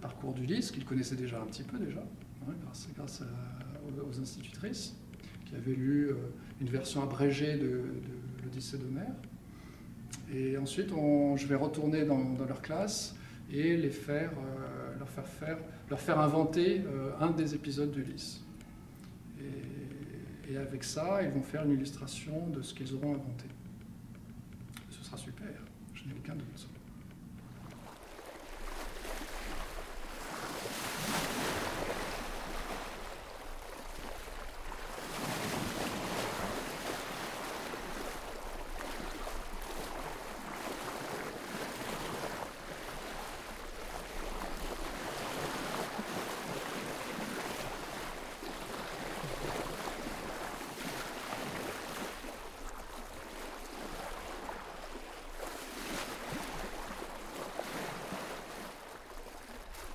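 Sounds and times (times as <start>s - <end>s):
sea waves washing in: 26.6s - 59.9s.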